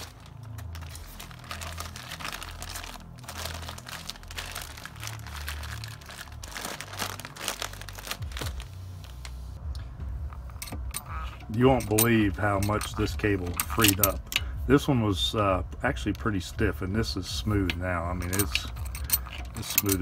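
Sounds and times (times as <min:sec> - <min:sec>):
plastic bag crinkling: 0:00.0 - 0:09.4.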